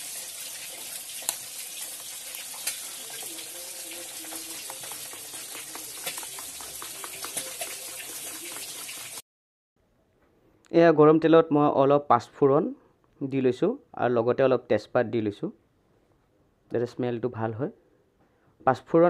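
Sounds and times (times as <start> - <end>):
spoon stirring wet paste: 0.3 - 9.2.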